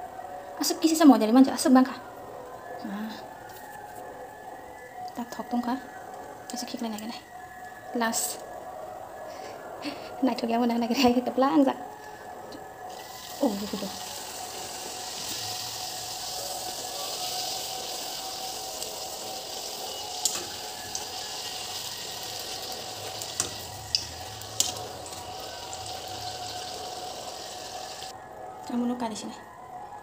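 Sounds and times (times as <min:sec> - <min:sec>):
hot oil sizzling: 0:12.9 - 0:28.1.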